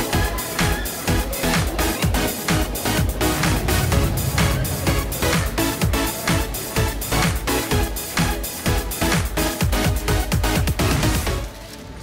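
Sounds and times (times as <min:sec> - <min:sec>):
electronic dance music: 0:00.0 - 0:11.5
low rumble: 0:02.0 - 0:08.1.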